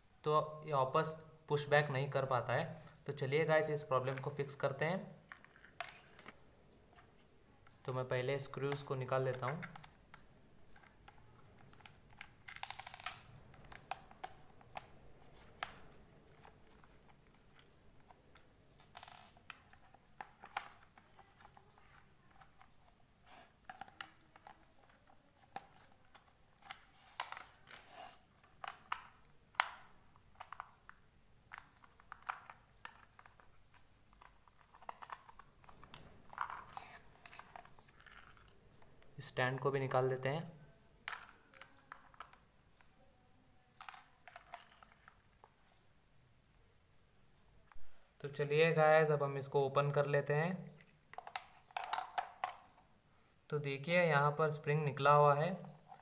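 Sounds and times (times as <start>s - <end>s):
plastic housing handled: 28.5s - 39.0s, 51.1s - 52.8s.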